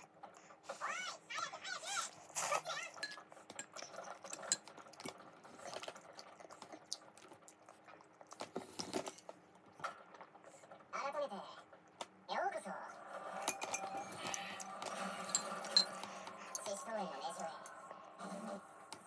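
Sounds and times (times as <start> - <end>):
slurping and chewing noodles: 1.6 - 10.9, 13.2 - 16.9
cutlery clinking on glass bowl: 3.0 - 5.1, 13.4 - 14.4, 15.2 - 16.8.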